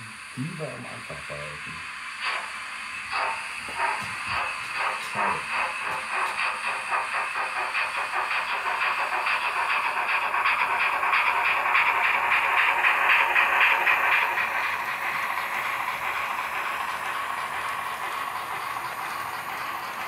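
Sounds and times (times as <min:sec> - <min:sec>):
model train steam chuffs: 0:00.0 - 0:20.0
steady steam hiss: 0:00.0 - 0:20.0.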